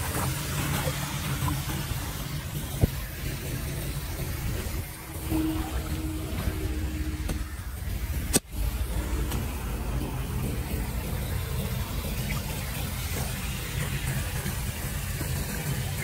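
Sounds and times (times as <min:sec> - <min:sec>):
floodwater flowing: 0:00.0 - 0:16.0
motorbike engine rumbling: 0:02.9 - 0:15.0.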